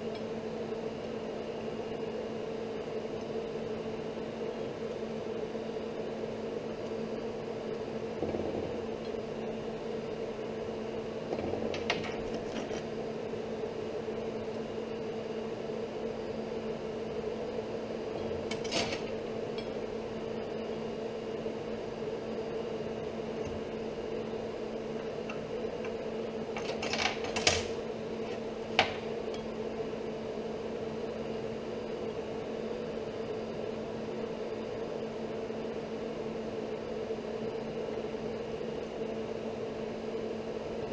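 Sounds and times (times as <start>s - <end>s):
steady machine hum: 0.0s - 40.9s.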